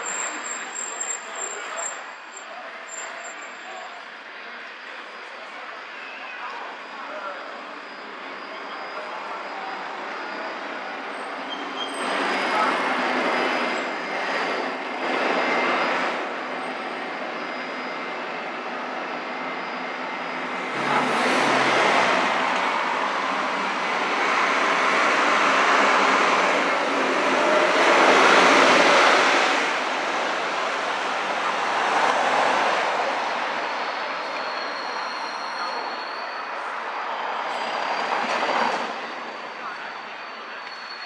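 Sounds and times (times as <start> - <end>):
vehicles passing: 6.7 - 34.9.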